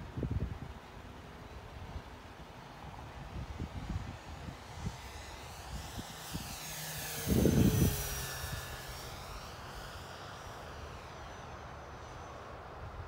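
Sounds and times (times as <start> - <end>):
wind buffeting microphone: 2.9 - 9.5
model plane motor whining: 4.1 - 12.9.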